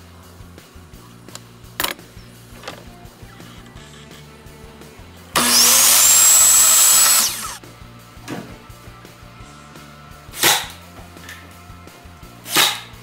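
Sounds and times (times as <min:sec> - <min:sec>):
miter saw whining: 0:05.4 - 0:07.6
nail gun shot: 0:10.3 - 0:10.8, 0:12.5 - 0:13.0.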